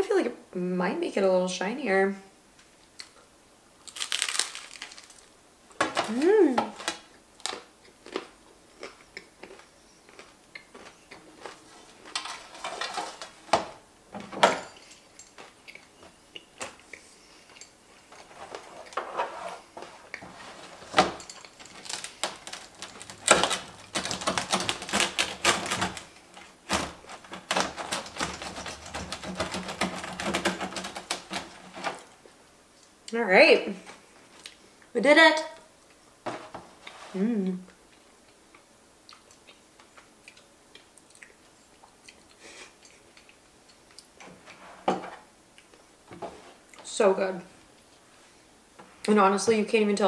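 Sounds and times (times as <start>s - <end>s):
pizza cutter crunching through crust: 18.2s - 32.1s.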